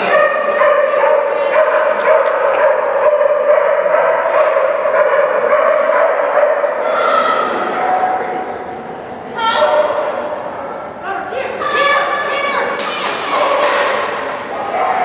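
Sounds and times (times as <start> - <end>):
dogs barking: 0.0 - 6.8
steady hum: 0.0 - 15.0.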